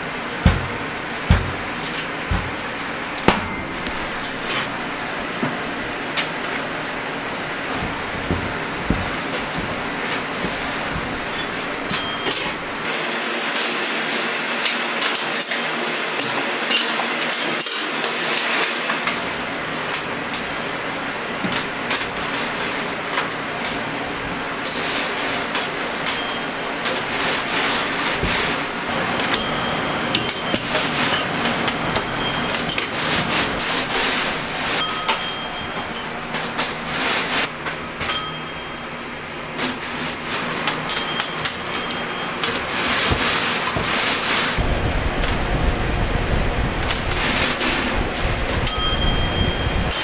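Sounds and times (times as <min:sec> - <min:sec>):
steady kitchen din: 0:00.0 - 0:45.7
hand-cranked candy-pulling machine: 0:24.6 - 0:38.4, 0:39.6 - 0:44.6.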